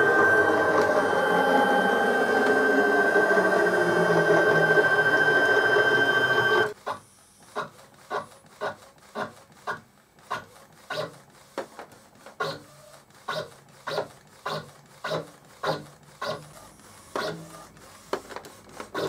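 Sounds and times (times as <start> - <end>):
printer motor whirring: 0.0 - 6.8
printer printing strokes: 0.0 - 19.0.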